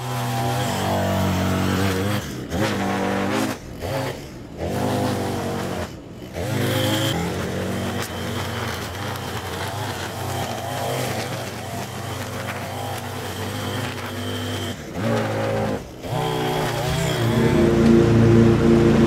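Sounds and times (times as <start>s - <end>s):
string trimmer cutting grass: 0.0s - 19.0s.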